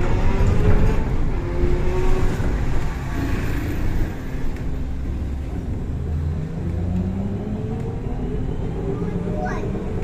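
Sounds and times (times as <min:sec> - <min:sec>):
low rumble of trolleybus: 0:00.0 - 0:10.0.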